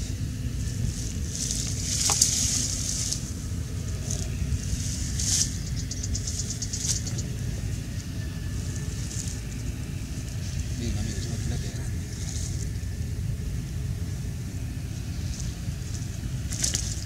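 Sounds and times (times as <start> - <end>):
wind buffeting microphone: 0.0 - 17.0
rapid ticks: 4.0 - 7.4.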